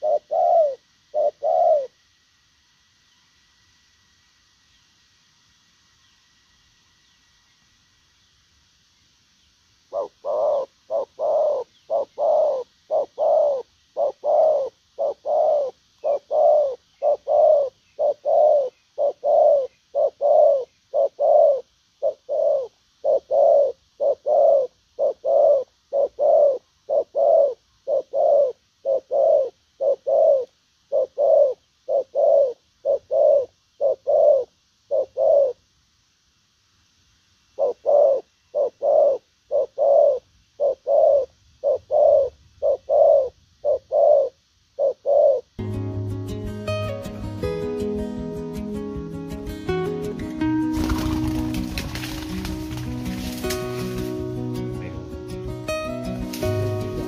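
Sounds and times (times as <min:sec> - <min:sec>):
dove cooing: 0:00.0 - 0:02.0, 0:09.9 - 0:35.6, 0:37.6 - 0:45.6, 0:49.7 - 0:57.0.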